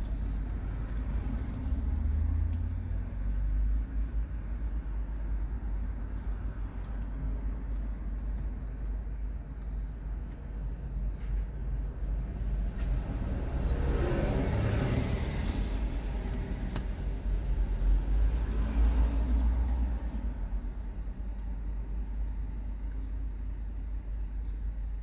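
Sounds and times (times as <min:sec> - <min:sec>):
road traffic rumble: 0:00.0 - 0:25.0
bus passing close by: 0:11.9 - 0:21.0.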